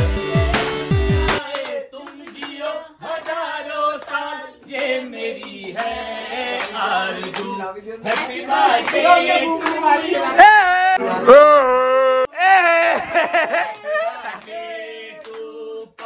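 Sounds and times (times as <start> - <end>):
hand claps: 0.0 - 10.0, 13.7 - 14.6, 15.2 - 16.0
group singing birthday song: 0.0 - 11.3, 13.1 - 16.0.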